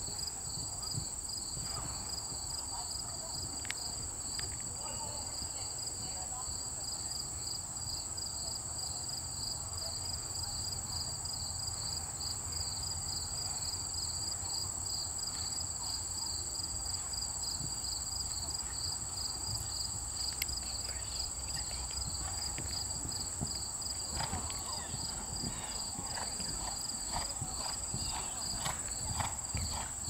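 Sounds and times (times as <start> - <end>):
faint clicks: 20.3 - 20.6.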